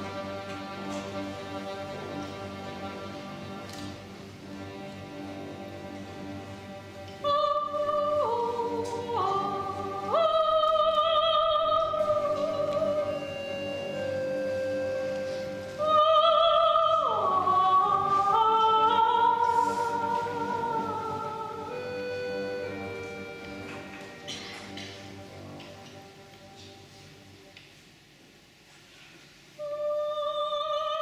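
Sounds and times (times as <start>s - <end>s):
accordion orchestra chords: 0.0s - 10.8s, 11.4s - 18.2s, 19.3s - 28.2s
woman singing with vibrato: 7.2s - 14.8s, 15.4s - 22.9s, 29.6s - 31.0s.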